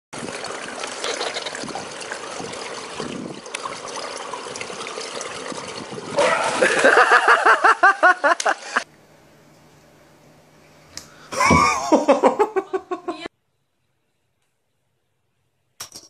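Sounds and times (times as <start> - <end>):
loud water splash: 0.2 - 8.8
pool water lapping: 0.2 - 8.9
person laughing: 6.2 - 8.8, 11.3 - 13.3.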